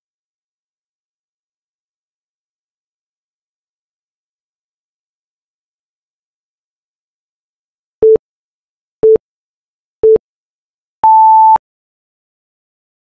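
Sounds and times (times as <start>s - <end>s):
long high timer beep: 11.0s - 11.6s
short low timer beeps: 11.0s - 11.6s.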